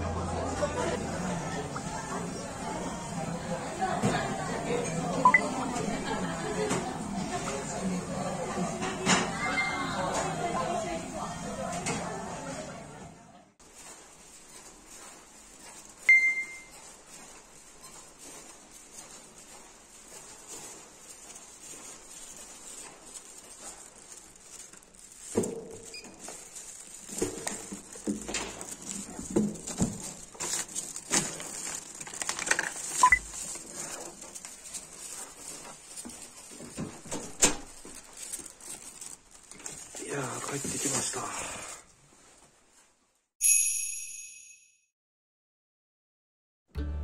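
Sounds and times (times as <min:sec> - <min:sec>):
short electronic beep: 0:05.2 - 0:05.4, 0:16.1 - 0:16.7, 0:33.0 - 0:33.2
plastic bag rustling: 0:05.5 - 0:08.3, 0:13.6 - 0:43.0
footsteps on carpet: 0:13.6 - 0:25.0.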